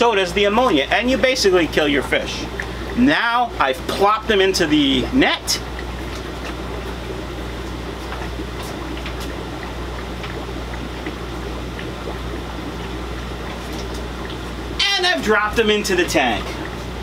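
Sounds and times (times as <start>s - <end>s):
aquarium filters bubbling: 0.0s - 17.0s
low steady hum: 0.0s - 17.0s.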